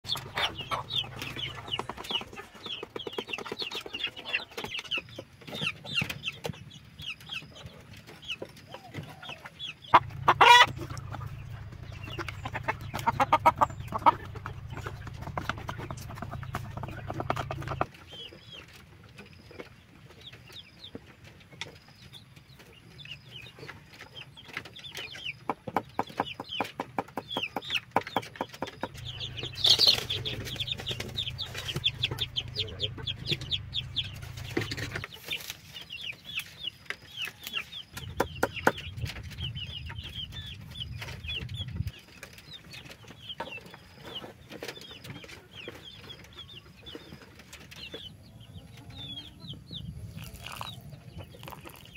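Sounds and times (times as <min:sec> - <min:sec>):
chicks peeping: 0:00.0 - 0:51.9
hens clucking: 0:00.0 - 0:51.9.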